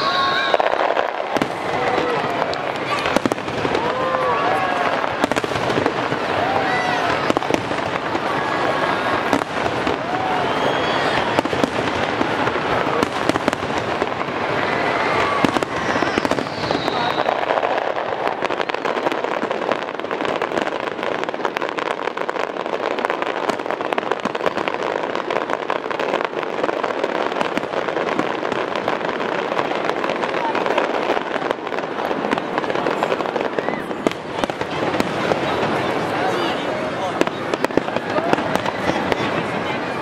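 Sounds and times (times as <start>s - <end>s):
fireworks crackling: 0.0s - 40.0s.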